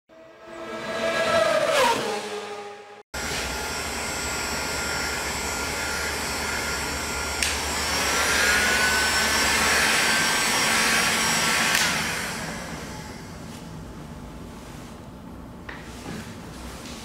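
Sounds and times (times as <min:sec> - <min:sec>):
heat gun blowing with whine: 0:03.2 - 0:13.7.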